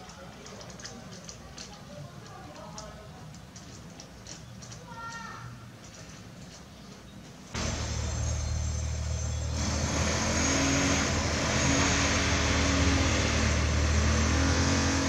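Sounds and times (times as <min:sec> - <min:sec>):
engine droning: 0:07.6 - 0:15.0.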